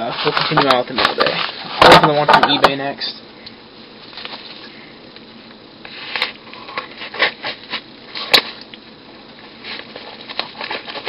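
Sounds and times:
package scraping and rustling: 0:00.1 - 0:02.6, 0:09.6 - 0:11.0.

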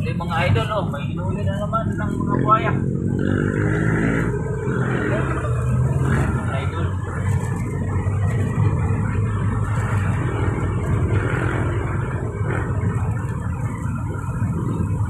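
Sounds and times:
road noise: 0:00.0 - 0:15.0
vehicle engine rumble: 0:00.0 - 0:15.0.

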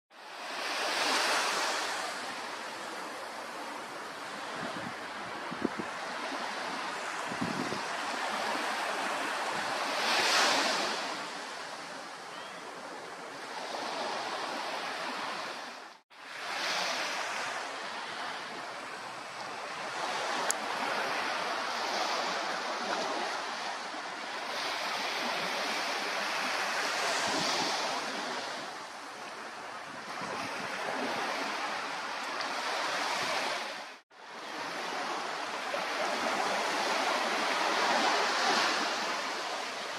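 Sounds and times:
small waves washing on shore: 0:00.2 - 0:39.9.

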